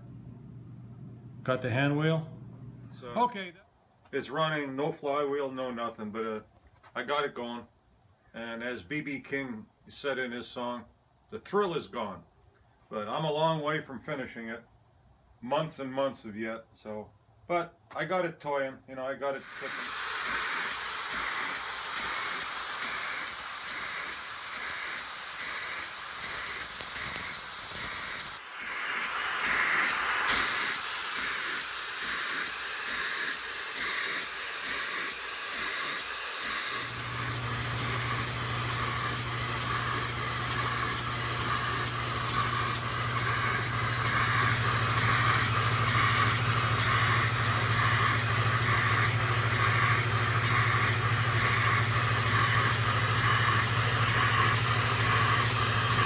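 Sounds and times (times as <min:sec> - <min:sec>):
low steady hum: 0:00.0 - 0:03.9
air hissing: 0:19.3 - 0:56.0
engine exhaust beat: 0:19.4 - 0:56.0.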